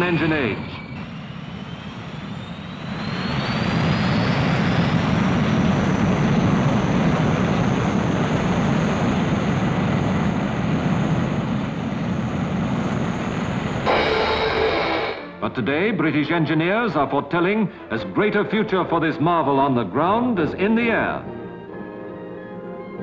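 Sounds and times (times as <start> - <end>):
jet engines roaring: 0.0 - 15.6
high turbine whine: 0.0 - 15.7.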